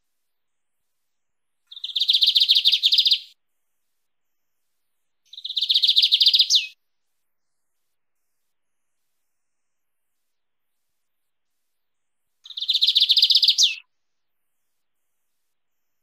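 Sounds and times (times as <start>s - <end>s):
bird singing trilled phrases: 1.7s - 3.4s, 5.3s - 6.8s, 12.4s - 13.9s.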